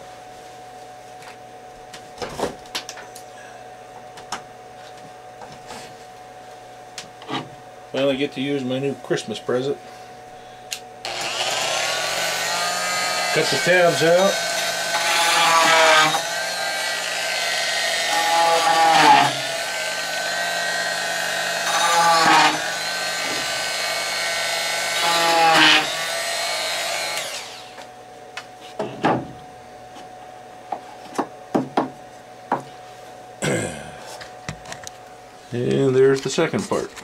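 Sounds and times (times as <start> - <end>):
rotary tool whining: 11.0 - 27.9.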